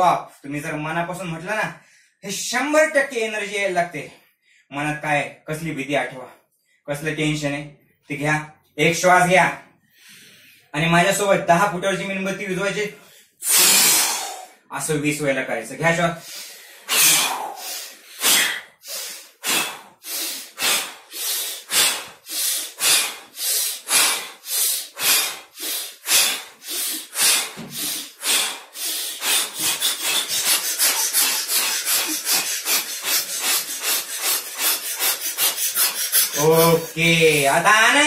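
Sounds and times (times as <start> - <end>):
man blowing out hard: 13.4 - 14.5, 16.8 - 37.2.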